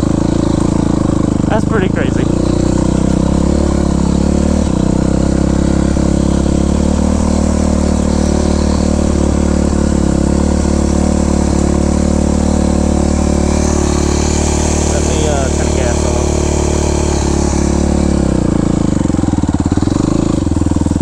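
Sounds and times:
dirt bike engine running: 0.0s - 21.0s.

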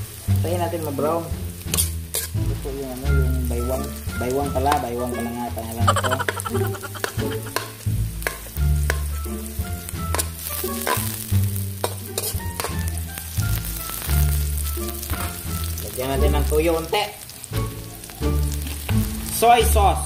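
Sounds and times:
onions sizzling in hot oil: 0.0s - 20.0s
metal spatula scraping pan: 1.7s - 2.4s, 10.0s - 14.4s.

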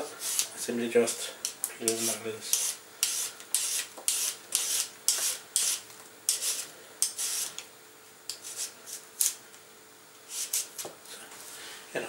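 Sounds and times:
peeler scraping a carrot: 0.1s - 1.2s, 1.8s - 7.6s, 8.3s - 9.4s, 10.3s - 10.9s.

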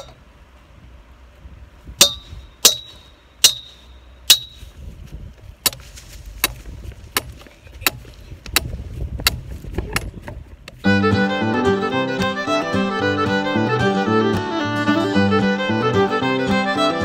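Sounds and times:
sledgehammer pounding metal post: 2.0s - 4.7s, 5.6s - 5.8s, 6.4s - 10.2s.

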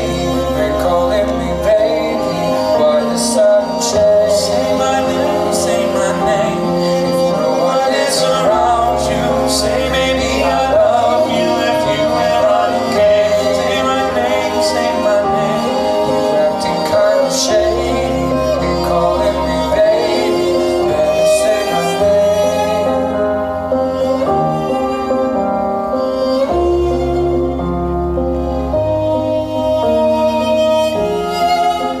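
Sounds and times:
song with singing: 0.0s - 24.1s.

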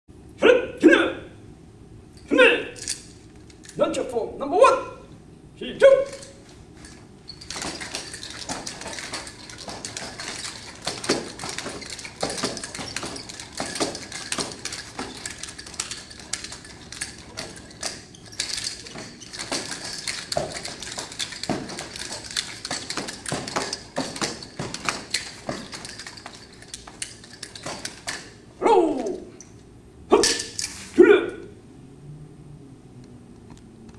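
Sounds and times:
nunchaku chain rattling: 2.1s - 3.9s, 5.8s - 31.0s
sticks clinking and clacking: 2.2s - 3.8s, 6.0s - 31.0s
person shouting: 28.6s - 29.3s, 31.0s - 31.5s.

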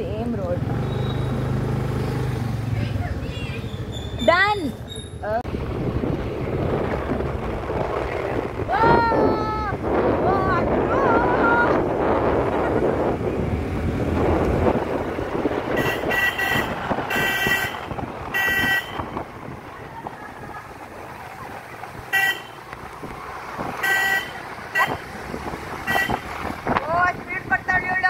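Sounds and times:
wind and road rush: 0.0s - 28.0s
vehicle horn short toots: 15.7s - 19.1s, 22.1s - 22.6s, 23.8s - 25.0s, 25.8s - 26.3s.

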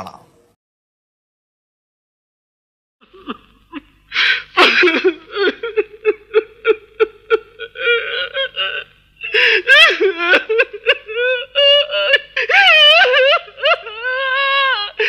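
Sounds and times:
man crying and sobbing: 3.1s - 15.0s.

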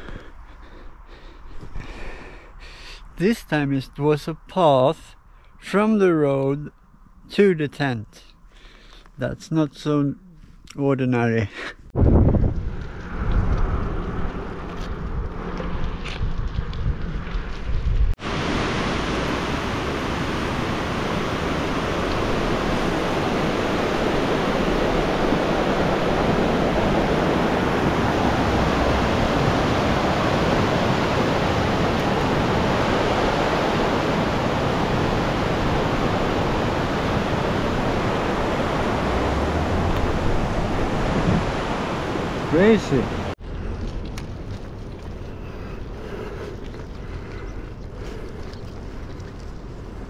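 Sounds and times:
wind buffeting microphone: 11.9s - 50.0s
water rushing over rocky rapids: 18.2s - 43.4s.

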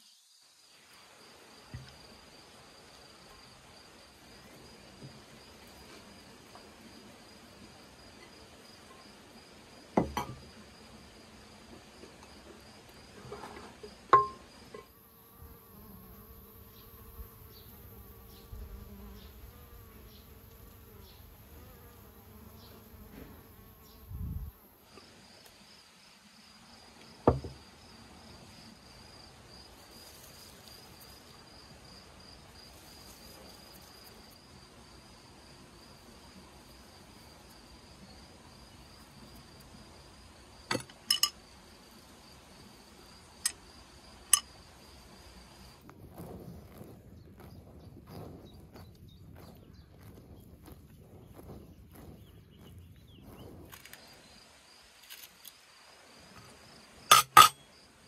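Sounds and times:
insects chirring: 0.0s - 58.0s
knocks on metal cooking pot: 10.0s - 10.4s, 14.1s - 14.9s.

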